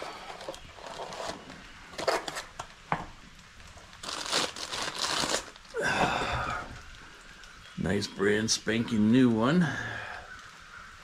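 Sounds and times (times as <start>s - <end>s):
plastic and paper crinkling: 0.0s - 2.8s, 3.6s - 5.8s.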